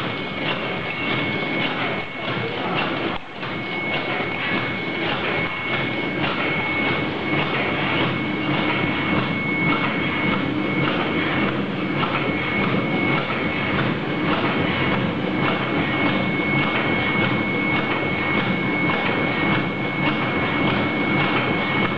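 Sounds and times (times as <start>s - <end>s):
high-pitched machine whine: 0.0s - 21.9s.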